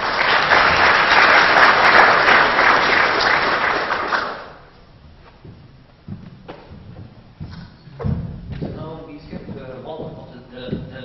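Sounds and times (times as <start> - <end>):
audience applauding: 0.0 - 4.7.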